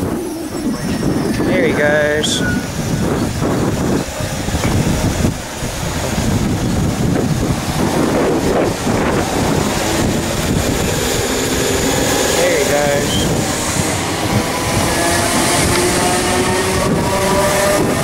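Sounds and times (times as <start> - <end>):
train rumbling on rails: 0.0 - 18.0
wind noise on microphone: 0.0 - 18.0.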